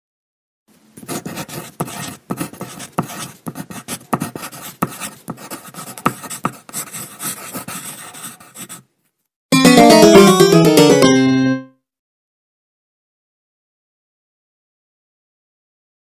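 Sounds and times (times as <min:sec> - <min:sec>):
pen scratching on paper: 0:01.0 - 0:08.9.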